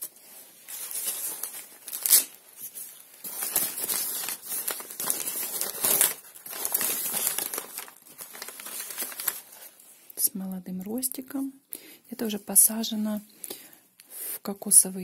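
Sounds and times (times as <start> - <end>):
packing paper crinkling: 0.0 - 10.0.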